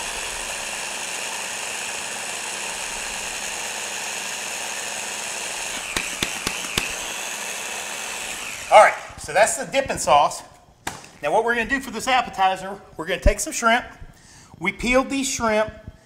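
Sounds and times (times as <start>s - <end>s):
electric blender running: 0.0s - 9.2s
sharp clicks: 5.7s - 7.0s.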